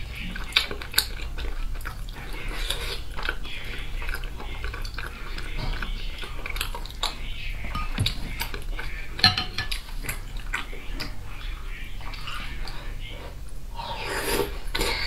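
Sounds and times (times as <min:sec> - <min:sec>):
wet chewing and lip smacking: 0:00.0 - 0:09.0.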